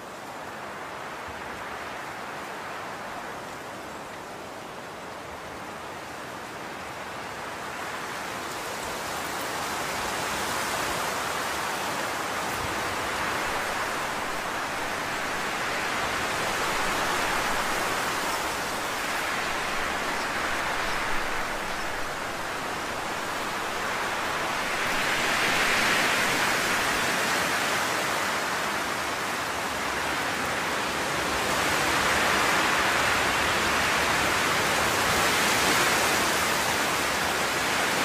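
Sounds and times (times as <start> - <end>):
steady rushing hiss: 6.6 - 38.0.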